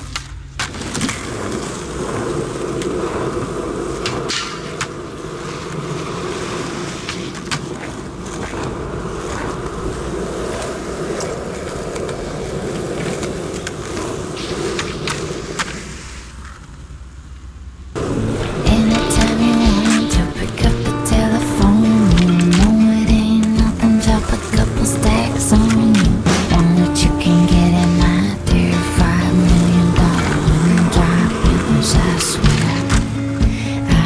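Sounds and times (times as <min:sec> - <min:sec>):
skateboard wheels rolling on concrete: 0:00.0 - 0:34.0
skateboard clacking on ground: 0:02.3 - 0:16.8.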